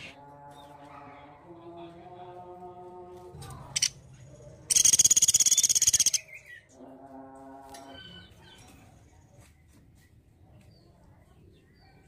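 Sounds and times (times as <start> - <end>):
woodpecker rattling trill: 3.8 - 4.0, 4.7 - 6.4.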